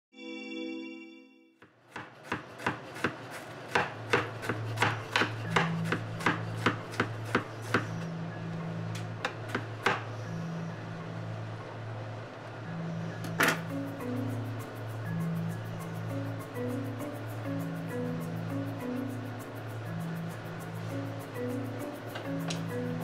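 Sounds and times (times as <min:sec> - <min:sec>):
knife chopping onions: 0:01.9 - 0:08.0
bass line of background music: 0:04.3 - 0:23.0.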